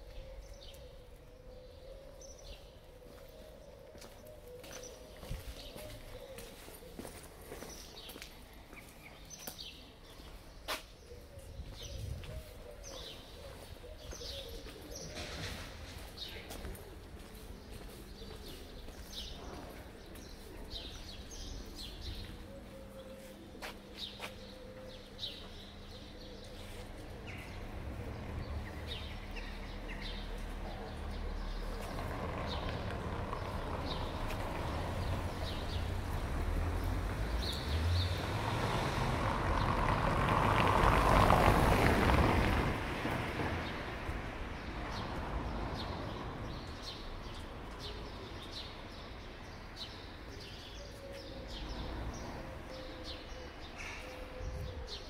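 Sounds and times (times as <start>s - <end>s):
vehicle passing by: 26.6s - 46.6s.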